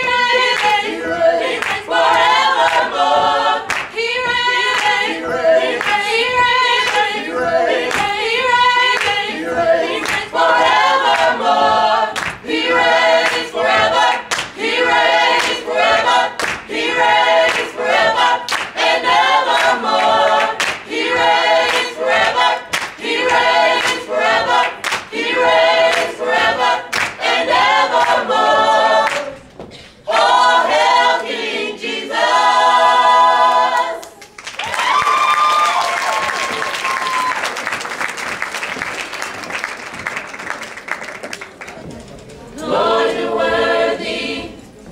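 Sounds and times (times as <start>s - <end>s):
gospel group singing in harmony: 0.0s - 34.4s, 42.4s - 44.9s
hand claps: 1.6s - 2.9s, 3.6s - 4.0s, 4.7s - 5.2s, 5.8s - 6.1s, 8.9s - 9.3s, 10.0s - 10.3s, 12.1s - 12.6s, 13.2s - 13.5s, 14.2s - 14.6s, 16.4s - 16.7s, 17.5s - 17.7s, 18.5s - 18.8s, 19.5s - 21.0s, 21.6s - 25.2s, 26.9s - 27.3s, 29.0s - 29.3s, 34.0s - 41.8s.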